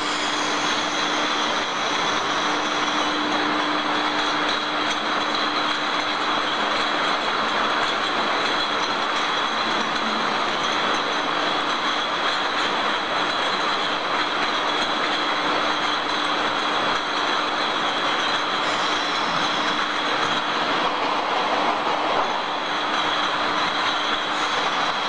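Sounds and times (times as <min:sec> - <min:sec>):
high whine: 0:00.0 - 0:05.8, 0:17.9 - 0:25.0
low machine hum: 0:00.0 - 0:25.0.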